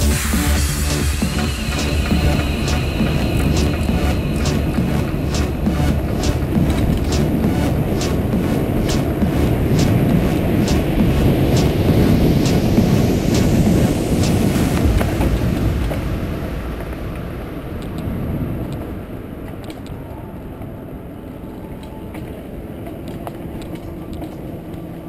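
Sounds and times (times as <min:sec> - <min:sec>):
wind buffeting microphone: 0:01.0 - 0:20.2.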